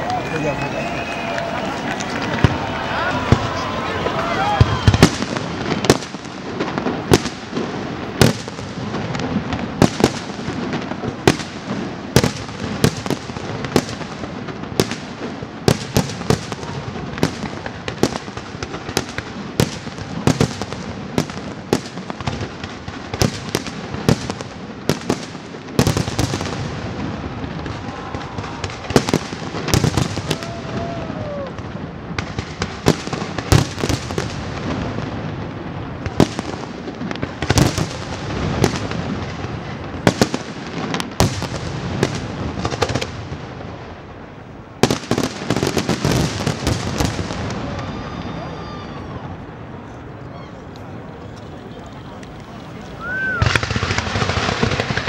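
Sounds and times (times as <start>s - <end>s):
fireworks crackling: 0.0s - 55.0s.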